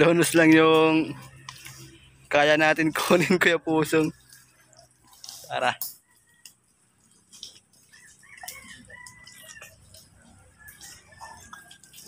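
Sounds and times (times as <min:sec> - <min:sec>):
chicken calling: 0:07.4 - 0:12.0.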